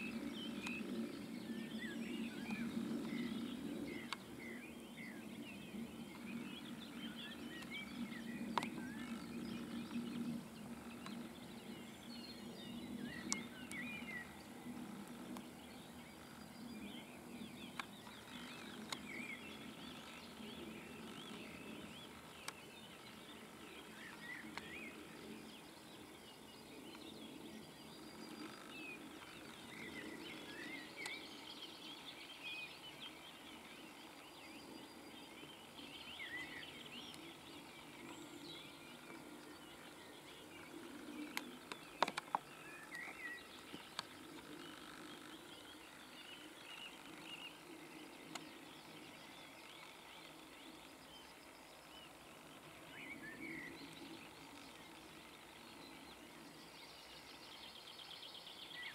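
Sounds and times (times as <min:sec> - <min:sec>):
songbirds singing: 0:00.0 - 0:58.9
sharp faint clicks: 0:41.3 - 0:44.2.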